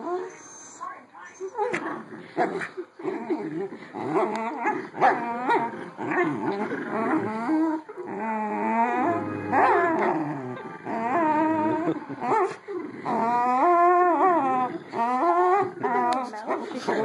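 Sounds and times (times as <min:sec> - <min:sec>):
dogs whining and play growling: 0:00.0 - 0:17.0.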